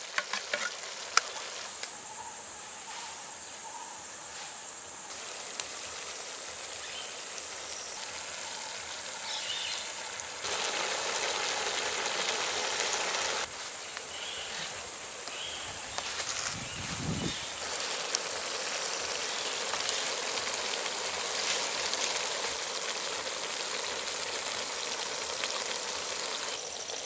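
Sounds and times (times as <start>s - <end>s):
pot simmering: 0.0s - 1.9s, 5.1s - 16.1s, 17.5s - 27.0s
wood fire crackling: 4.8s - 14.1s, 17.5s - 27.0s.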